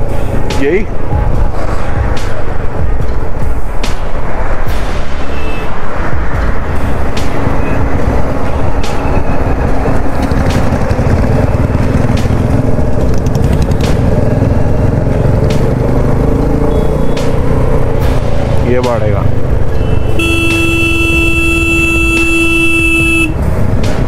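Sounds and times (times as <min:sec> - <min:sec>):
road noise: 0:00.0 - 0:24.0
motorcycle engine running: 0:07.3 - 0:24.0.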